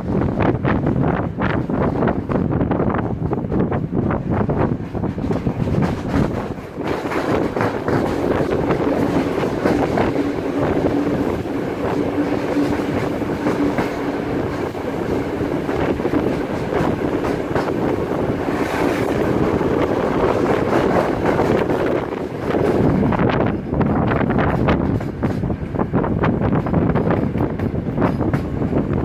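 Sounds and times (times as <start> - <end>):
wind rushing: 0.0 - 29.0.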